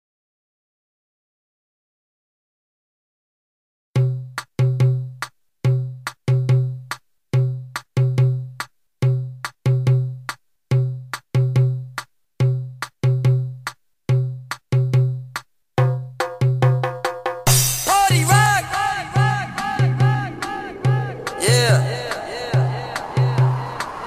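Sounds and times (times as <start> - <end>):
punchy low dance music hits: 17.5 - 23.8.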